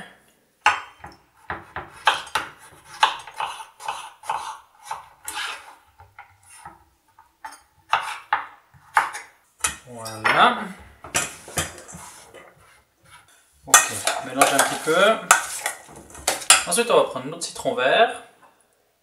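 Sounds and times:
knife chopping on wooden board: 0.6 - 5.6, 7.9 - 9.8.

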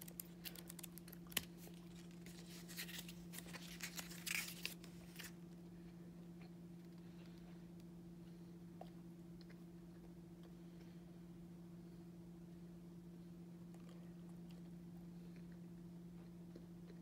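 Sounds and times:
paper pages rustling: 0.0 - 5.4
steady low hum: 0.0 - 17.0.

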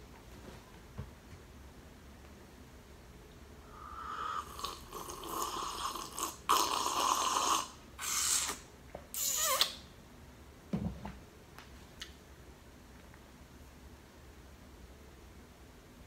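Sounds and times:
loud slurping from mug: 4.1 - 8.6.

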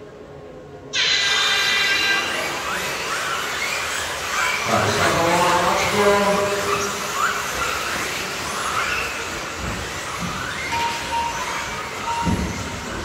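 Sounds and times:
rc car motor whine: 1.0 - 13.0
tyre and running noise: 4.4 - 13.0
electronic beep: 10.4 - 13.0.

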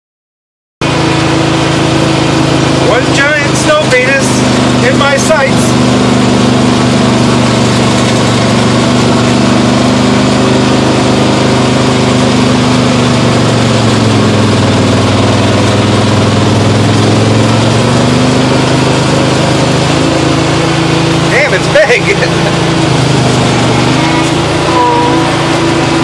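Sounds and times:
snowblower engine running: 0.8 - 26.0.

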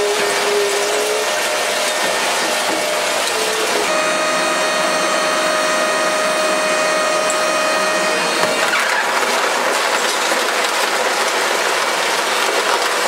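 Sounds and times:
shredder grinding and crunching: 0.0 - 13.0
steady whine: 1.2 - 10.4.

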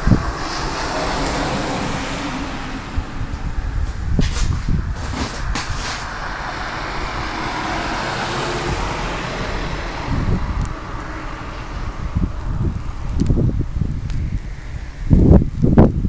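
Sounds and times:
car tyres on snowy road: 0.0 - 16.0
wind gusting on microphone: 0.0 - 16.0
car tyre hiss on snowy road: 0.2 - 3.1.

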